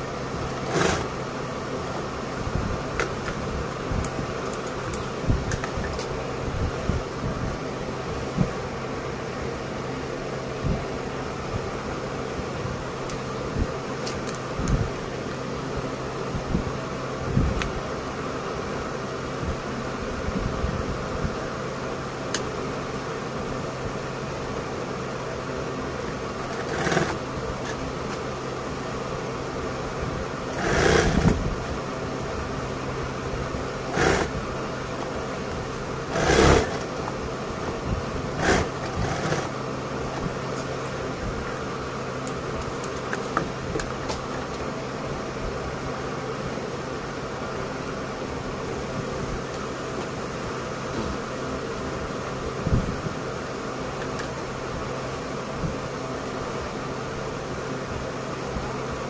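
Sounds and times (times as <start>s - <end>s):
sewing machine stitching: 0.6s - 1.2s, 26.1s - 27.8s, 30.5s - 31.4s, 33.9s - 34.4s, 36.0s - 37.0s, 38.4s - 39.6s.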